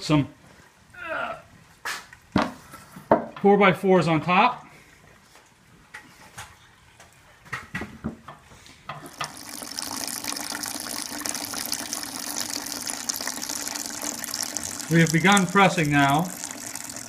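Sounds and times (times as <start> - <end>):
juice pouring into plastic bucket: 9.0 - 17.0.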